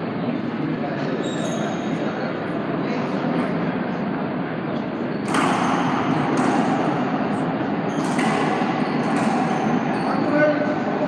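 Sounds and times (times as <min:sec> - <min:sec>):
steady background noise: 0:00.0 - 0:11.0
ball bouncing on wooden floor: 0:07.9 - 0:10.0.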